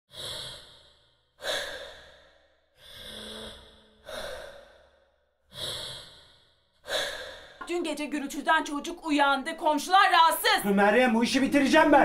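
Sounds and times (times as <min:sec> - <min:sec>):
faint wheeze: 0:00.1 - 0:07.6
person gasping breaths: 0:00.1 - 0:07.6.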